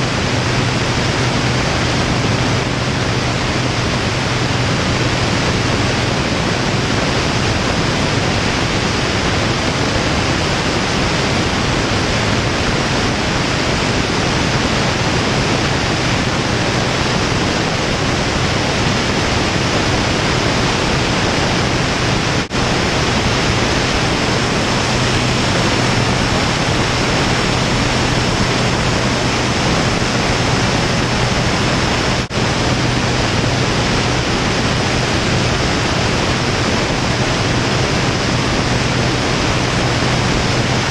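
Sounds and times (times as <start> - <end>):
airflow rushing over camera: 0.0 - 40.9
airplane engine and propeller drone: 0.0 - 40.9.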